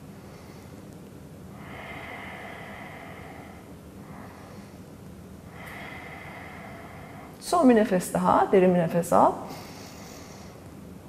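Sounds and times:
woman breathing: 0.0 - 0.9, 1.5 - 7.4, 9.5 - 10.9.

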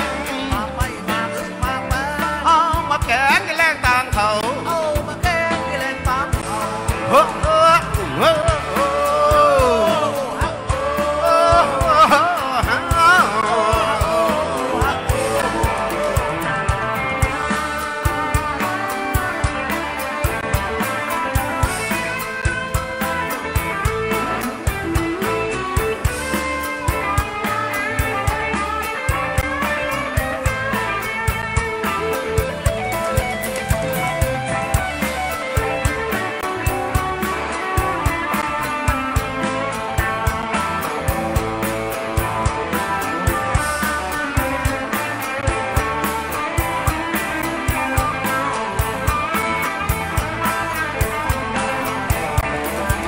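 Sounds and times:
low bass line: 0.0 - 27.3
drum kit beat: 0.0 - 53.0
electric guitar lead line: 0.0 - 53.0.

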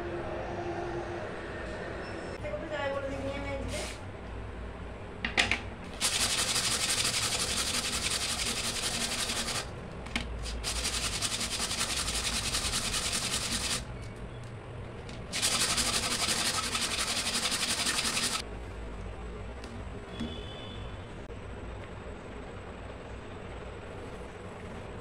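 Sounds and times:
pipe scratching on sandpaper: 6.0 - 9.7, 10.4 - 13.8, 15.3 - 18.4.

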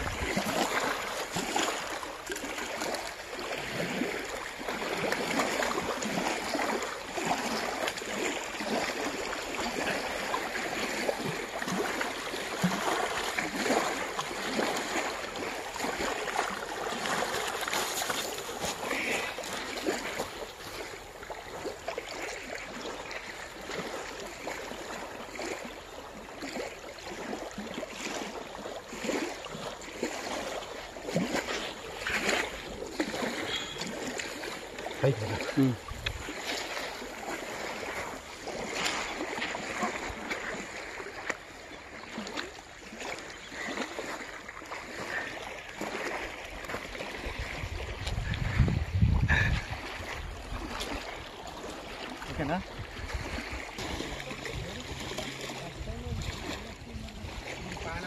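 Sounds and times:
fish thrashing in shallow water: 0.0 - 58.0
water lapping at river edge: 0.0 - 58.0.

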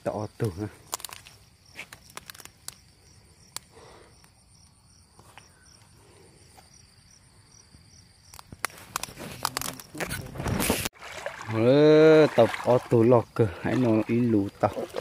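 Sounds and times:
insects chirping: 0.0 - 15.0
sharp clicks and rustles: 0.9 - 2.9, 8.3 - 10.9.

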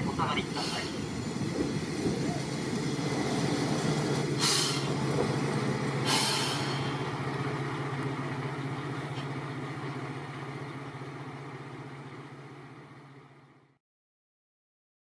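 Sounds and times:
railcar engine humming: 0.0 - 13.8
air brake hisses: 0.6 - 1.1, 4.4 - 5.0, 6.0 - 7.1.

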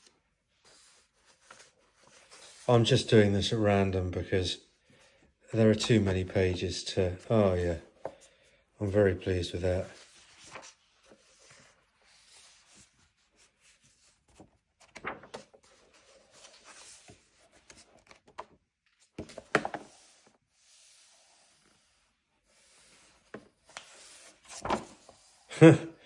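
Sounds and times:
book pages turning: 0.0 - 3.1, 5.6 - 20.4, 23.1 - 25.4.

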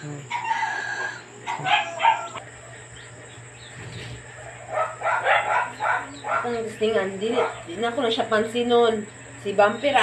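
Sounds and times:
dog whining: 0.3 - 2.4
dog barking: 1.4 - 2.4, 4.4 - 6.6, 7.3 - 7.7.

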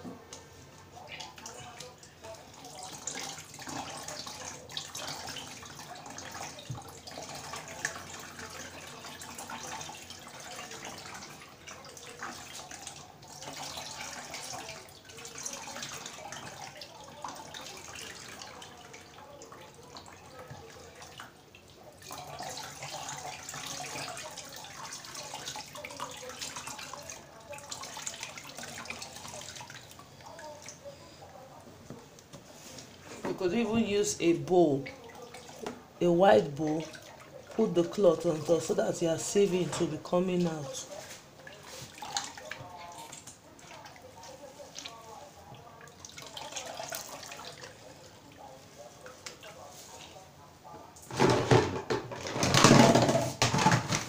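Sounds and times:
liquid trickling into plastic bucket: 34.6 - 49.9, 51.0 - 54.0.

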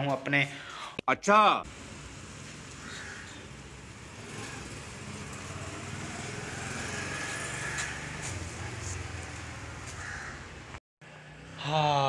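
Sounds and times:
small engine running at low revs: 3.0 - 9.6.

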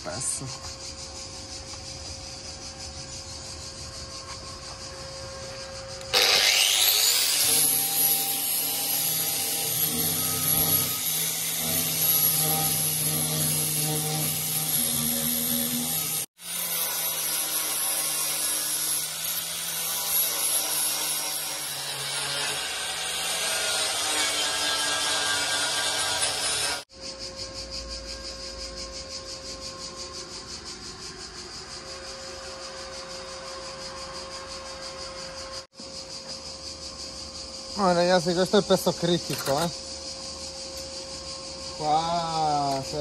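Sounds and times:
power tool cutting sheet steel: 6.0 - 26.9, 39.0 - 39.7.

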